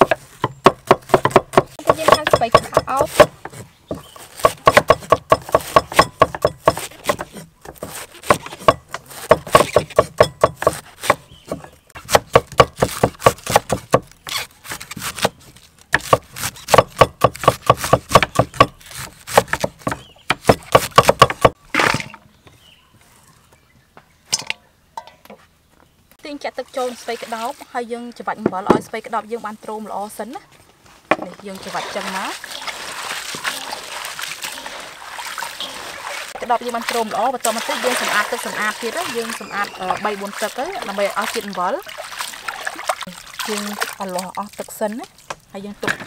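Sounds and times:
cleaver chopping on wooden block: 0.0 - 14.1, 14.7 - 22.1.

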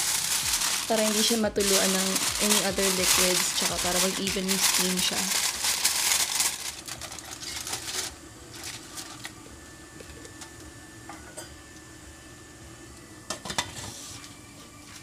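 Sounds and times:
aluminium foil crinkling: 0.0 - 9.4.

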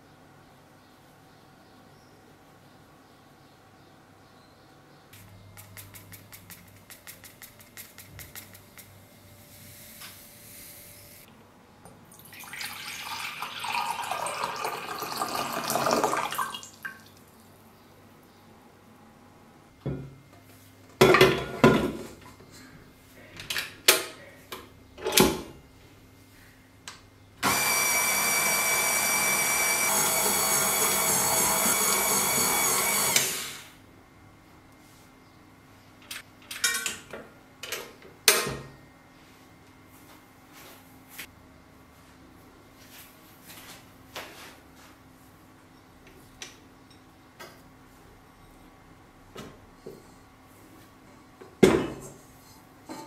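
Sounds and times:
stand mixer motor whining hum: 27.4 - 33.7.

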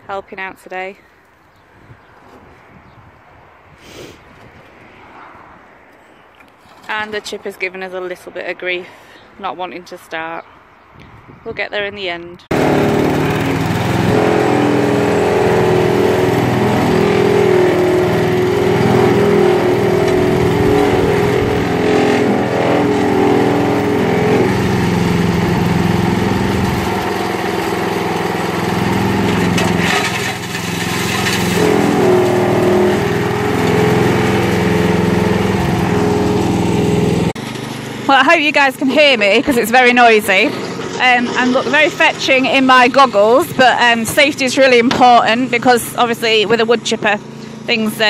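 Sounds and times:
branches crackling in shredder: 12.5 - 38.6
wood chipper engine running: 12.5 - 48.0.

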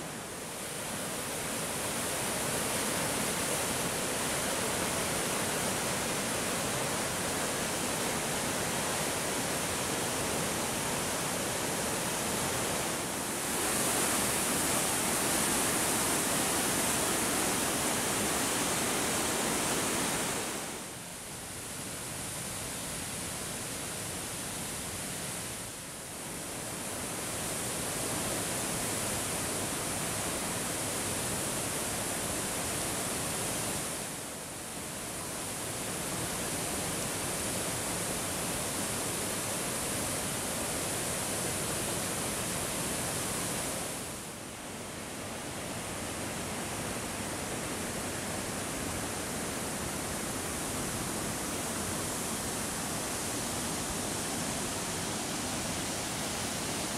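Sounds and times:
waterfall rushing: 0.0 - 21.0, 46.2 - 56.9.

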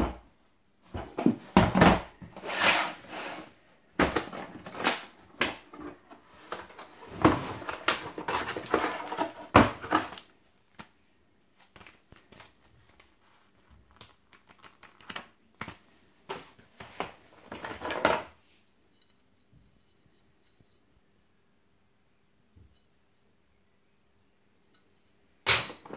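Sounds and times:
plastic tool case clattering: 4.0 - 10.3, 16.8 - 18.3.

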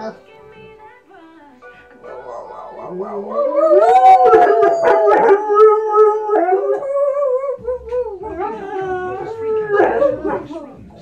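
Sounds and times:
dog howling: 2.3 - 10.8.

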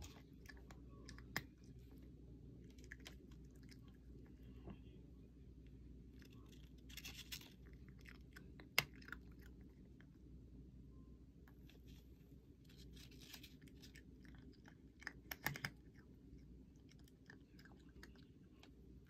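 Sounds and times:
cat crunching dry kibble: 2.6 - 4.4, 6.1 - 10.1, 12.6 - 19.0.

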